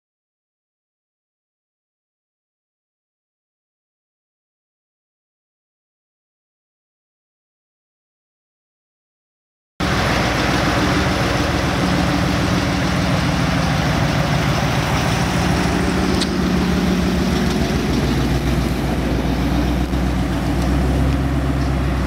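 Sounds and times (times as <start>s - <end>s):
car engine at low revs: 9.8s - 22.0s.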